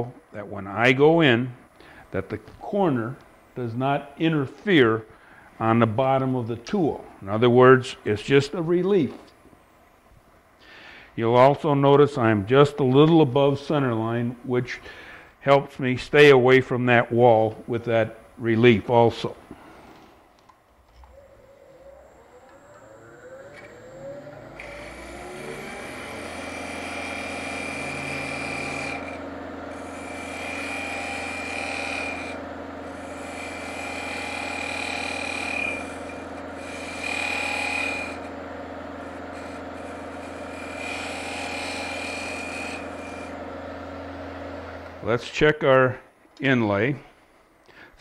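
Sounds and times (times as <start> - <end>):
lathe motor hum: 20.7 - 45.1
scraper cutting wood on lathe: 21.1 - 45.0.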